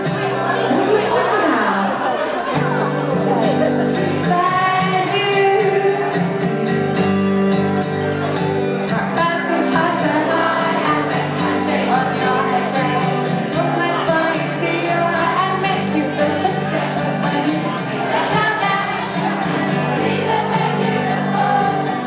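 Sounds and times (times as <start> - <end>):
live band playing pop: 0.0 - 22.0
woman singing into microphone: 4.2 - 6.3, 9.0 - 19.1, 19.7 - 22.0.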